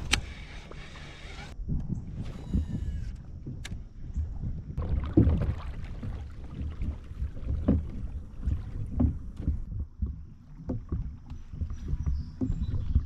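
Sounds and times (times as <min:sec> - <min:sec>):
low rumble: 0:00.0 - 0:13.0
water sloshing against a hull: 0:00.0 - 0:13.0
dull knocks: 0:05.2 - 0:13.0.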